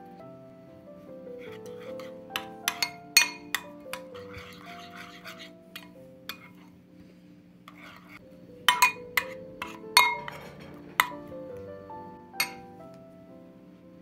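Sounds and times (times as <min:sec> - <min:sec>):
background music: 0:00.0 - 0:14.0
metal utensil clinking on glass bowl: 0:02.0 - 0:06.6, 0:08.7 - 0:11.3, 0:12.4 - 0:12.7
soft swishing of stirred sauce: 0:04.0 - 0:08.2.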